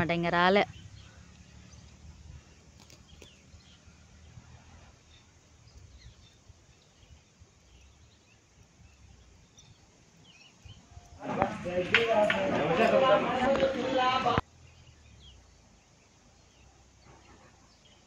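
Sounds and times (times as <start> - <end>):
faint chirps and clicks: 0.4 - 4.0, 5.1 - 11.2.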